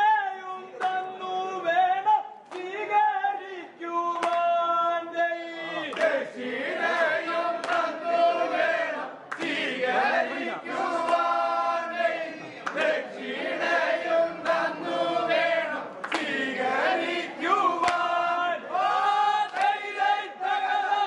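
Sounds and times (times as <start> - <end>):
group of voices chanting: 5.5 - 21.0.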